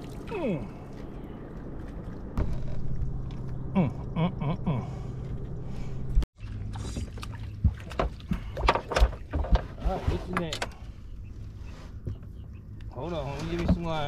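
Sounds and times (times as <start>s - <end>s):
boat motor humming: 10.3s - 14.0s.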